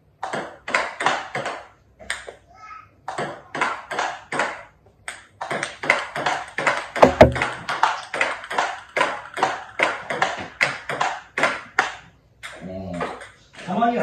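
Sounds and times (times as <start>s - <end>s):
deeper knock: 7.0s - 7.7s
table tennis ball clicking: 7.0s - 9.5s.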